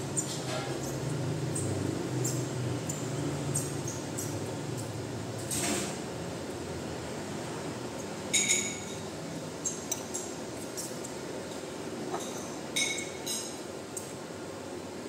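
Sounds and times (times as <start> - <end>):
utensils clinking against dish: 8.3 - 9.1, 12.2 - 13.6.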